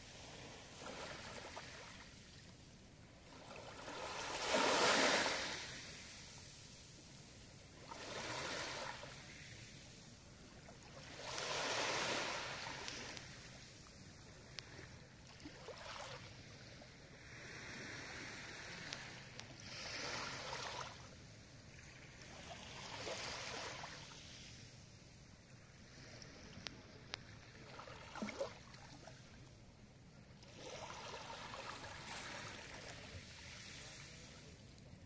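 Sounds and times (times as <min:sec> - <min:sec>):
small waves lapping on shore: 0:00.0 - 0:24.9, 0:25.5 - 0:29.5, 0:30.3 - 0:35.0
faint ticks: 0:14.5 - 0:14.7.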